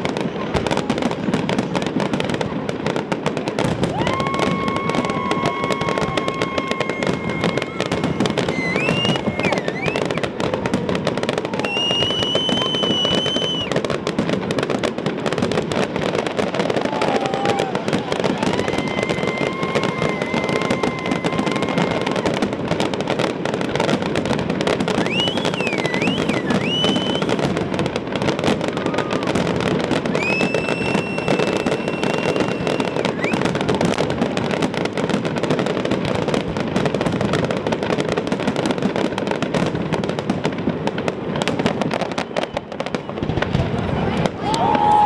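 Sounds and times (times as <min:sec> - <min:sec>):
fireworks bursts and crackle: 0:00.0 - 0:45.0
high firework whistles: 0:03.5 - 0:15.1, 0:15.7 - 0:37.4, 0:41.2 - 0:43.6.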